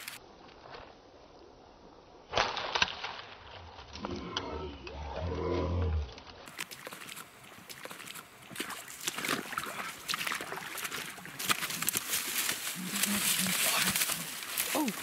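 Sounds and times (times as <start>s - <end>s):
footsteps through dry leaves: 8.8s - 15.0s.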